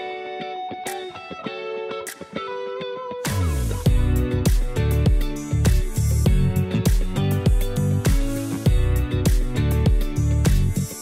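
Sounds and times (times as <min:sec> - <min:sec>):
picked guitar notes: 0:00.0 - 0:11.0
beat with heavy bass and drums: 0:03.3 - 0:11.0.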